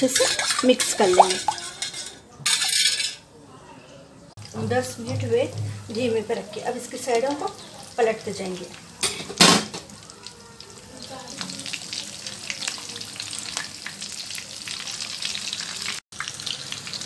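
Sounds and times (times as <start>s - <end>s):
food deep-frying in oil: 4.4s - 17.0s
sizzle with crackles and pops: 4.4s - 17.0s.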